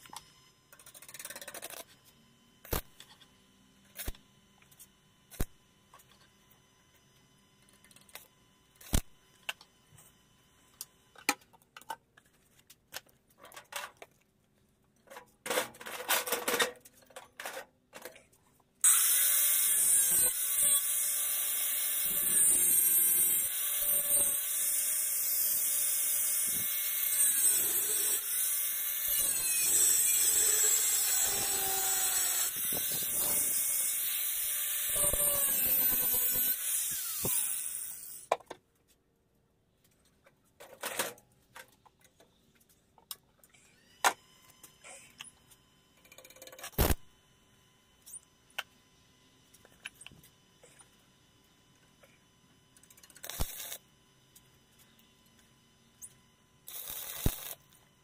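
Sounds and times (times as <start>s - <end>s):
angle grinder grinding steel: 18.8s - 38.3s, 56.7s - 57.6s.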